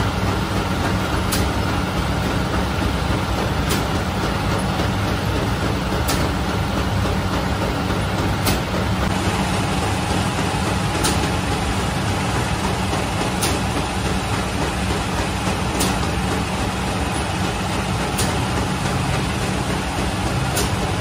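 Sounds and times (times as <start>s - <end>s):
machine mechanical hum: 0.0s - 21.0s
sharp machine click: 6.0s - 6.3s, 10.9s - 11.4s, 13.4s - 13.7s, 15.7s - 16.1s, 20.5s - 20.8s.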